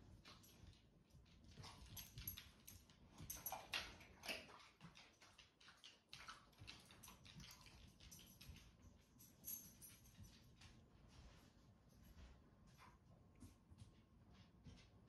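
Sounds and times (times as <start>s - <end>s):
dog's nails clicking on hardwood floor: 0.0s - 11.4s
soft rustles: 9.6s - 14.8s.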